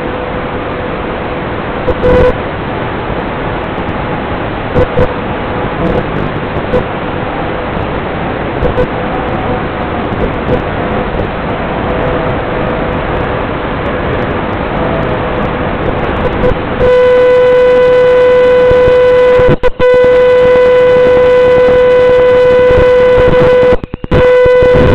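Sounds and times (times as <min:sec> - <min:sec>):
loud steady electronic beep: 0:01.8 - 0:02.4, 0:04.8 - 0:05.2, 0:05.8 - 0:06.9, 0:08.6 - 0:08.9, 0:16.2 - 0:24.9
radio static hiss: 0:01.9 - 0:02.4, 0:04.7 - 0:07.0, 0:08.6 - 0:13.3, 0:14.2 - 0:24.9.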